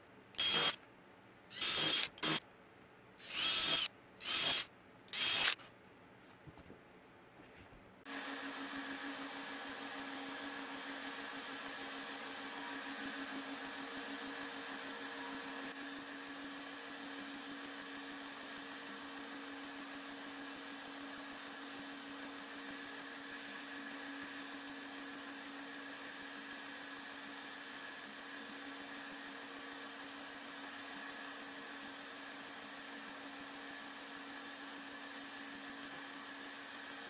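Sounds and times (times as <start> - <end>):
electric motor drone: 1.6 - 2.4, 3.2 - 4.6, 5.2 - 5.6.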